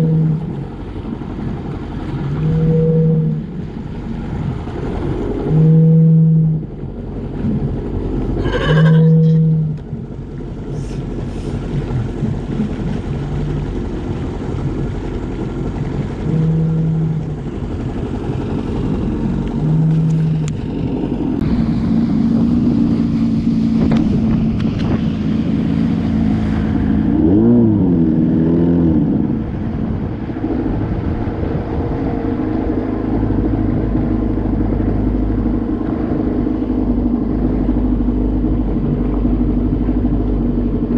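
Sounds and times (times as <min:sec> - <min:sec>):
jet ski engine: 0:00.0 - 0:40.9
sea lions calling: 0:08.4 - 0:09.8.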